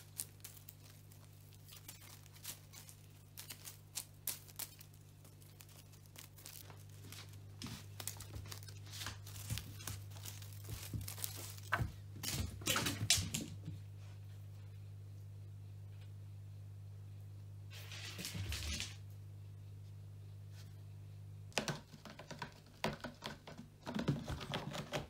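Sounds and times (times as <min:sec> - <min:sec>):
crinkly toy rustling and crackling: 0:00.0 - 0:13.4
steady low hum: 0:00.0 - 0:21.5.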